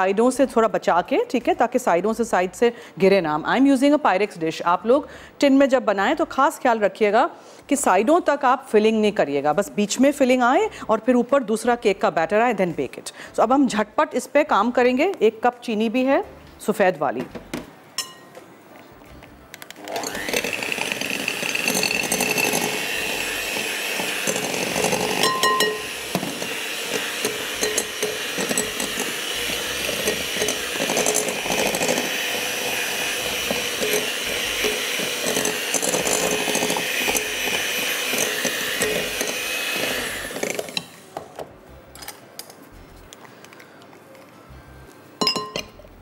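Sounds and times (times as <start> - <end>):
electric hand mixer running: 19.8 - 40.9.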